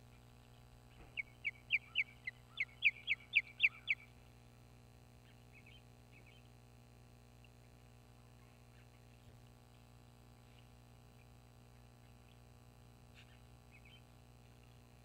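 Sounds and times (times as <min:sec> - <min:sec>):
bird sharp high chirps: 0:01.1 - 0:04.1.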